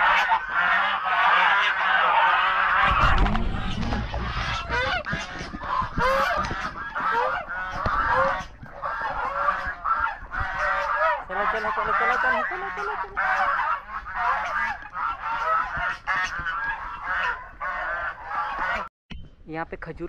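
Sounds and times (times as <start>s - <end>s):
waterfowl calling: 0.0s - 18.9s
low rumble: 2.4s - 11.9s.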